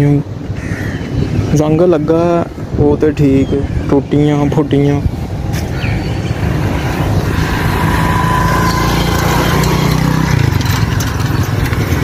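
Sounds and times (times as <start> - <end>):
motorcycle engine running: 6.4 - 12.0.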